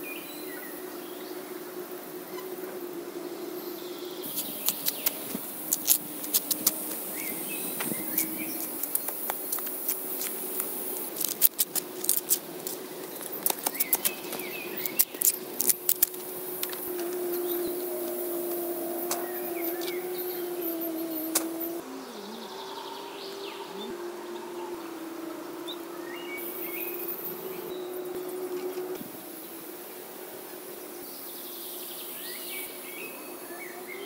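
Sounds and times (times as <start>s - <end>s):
birds chirping: 3.4s - 29.5s
bamboo poles clicking and tapping: 4.3s - 7.0s, 7.8s - 17.2s.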